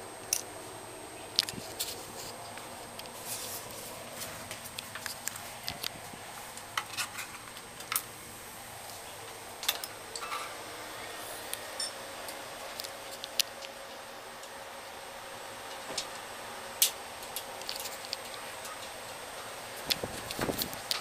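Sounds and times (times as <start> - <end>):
faint steady hiss: 0.0 - 21.0
sharp clicks and ticks: 12.3 - 14.6.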